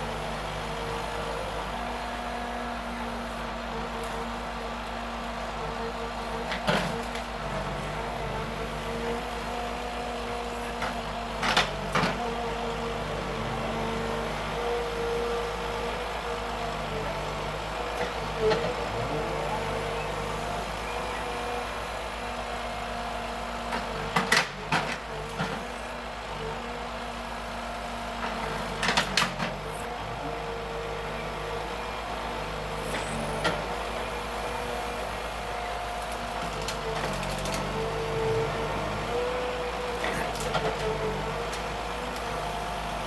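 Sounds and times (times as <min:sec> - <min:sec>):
harvester engine and hydraulics hum: 0:00.0 - 0:43.0.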